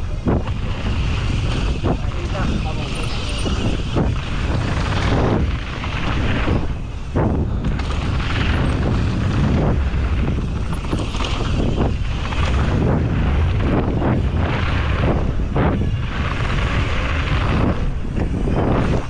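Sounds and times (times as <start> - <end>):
bike rattling over bumps: 0.0 - 19.0
bike tyre noise on dirt: 0.0 - 19.0
wind rumble on microphone: 0.0 - 19.0.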